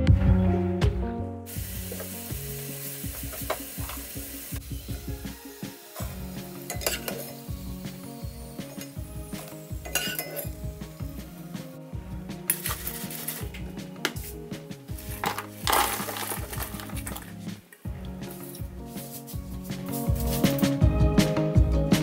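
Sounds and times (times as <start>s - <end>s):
soft background music: 0.0s - 22.0s
fries sizzling in hot oil: 1.5s - 11.8s, 12.4s - 13.6s, 14.9s - 17.4s
metal spoon clicking and scraping: 6.7s - 7.3s, 9.9s - 10.5s.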